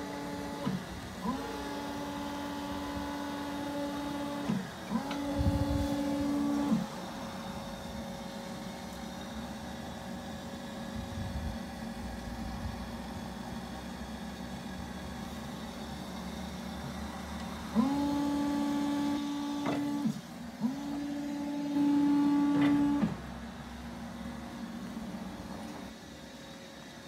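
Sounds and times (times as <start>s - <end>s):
electric motor whining: 0.0s - 9.0s, 15.1s - 26.0s.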